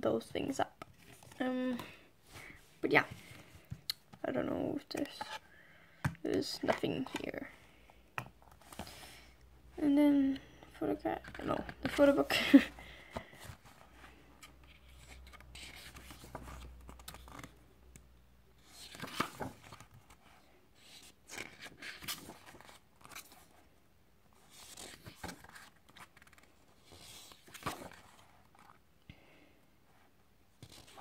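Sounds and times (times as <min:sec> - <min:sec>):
book pages turning: 0:00.8 - 0:01.9, 0:13.0 - 0:17.6, 0:18.6 - 0:23.6, 0:24.4 - 0:28.8, 0:30.6 - 0:31.0.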